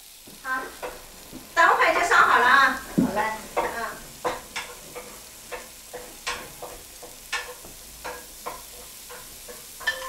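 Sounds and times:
food sizzling: 0:00.0 - 0:10.0
metal spatula scraping a wok: 0:05.9 - 0:10.0.

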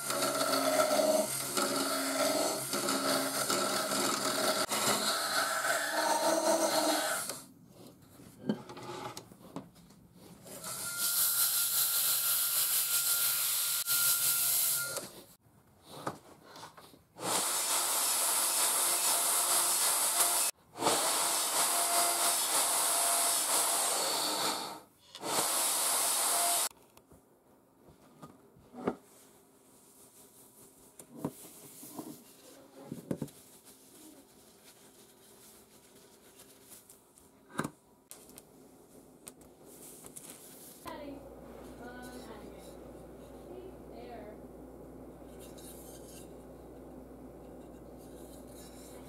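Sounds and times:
chisel cutting wood: 0:00.0 - 0:07.4
wood lathe spinning: 0:00.0 - 0:07.4.

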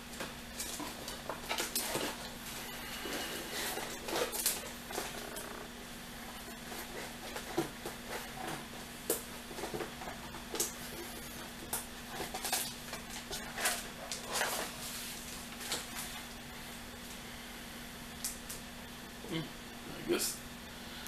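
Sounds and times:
faint steady hum: 0:00.0 - 0:21.0
cardboard and paper rustling: 0:00.1 - 0:05.4, 0:06.3 - 0:16.4.

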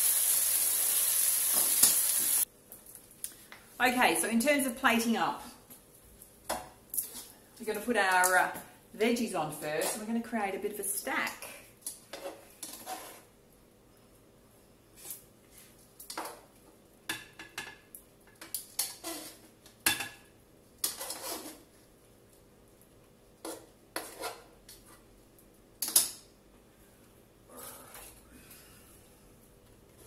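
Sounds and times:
utensil scraping frying pan: 0:12.1 - 0:13.3, 0:18.8 - 0:19.4, 0:20.8 - 0:21.7, 0:23.4 - 0:25.0.

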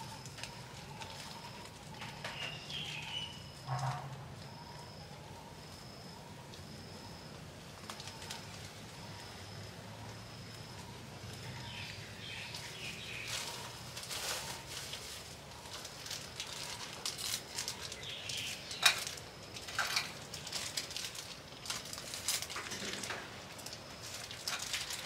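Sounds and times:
rustling and crackling clicks: 0:07.7 - 0:09.3, 0:10.0 - 0:25.0.

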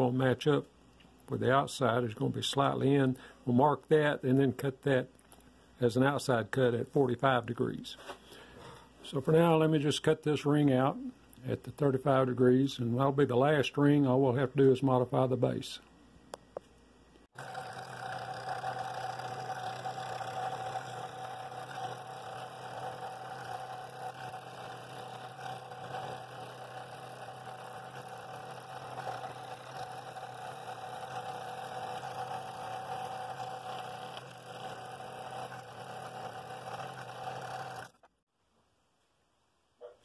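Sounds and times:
scroll saw cutting wood: 0:17.3 - 0:38.1.

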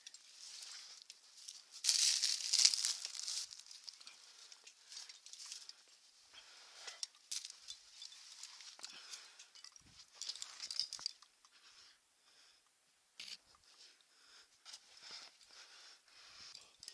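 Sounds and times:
hands rustling through grass: 0:00.2 - 0:05.7.

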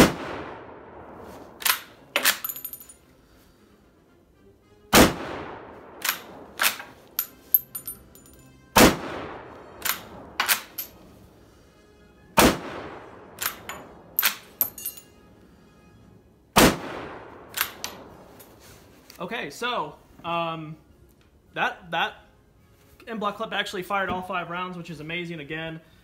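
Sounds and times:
rifle bolt metallic clacks: 0:01.6 - 0:03.0, 0:06.0 - 0:08.4, 0:09.8 - 0:11.0, 0:13.4 - 0:15.0, 0:17.5 - 0:18.0
rifle shots: 0:08.8 - 0:10.8, 0:12.4 - 0:14.4, 0:16.6 - 0:18.1.

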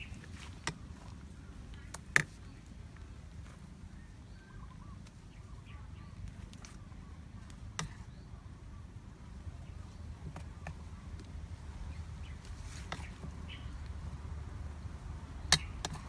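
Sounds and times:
low outdoor rumble: 0:00.0 - 0:16.0
faint bird chirps: 0:01.3 - 0:11.1.

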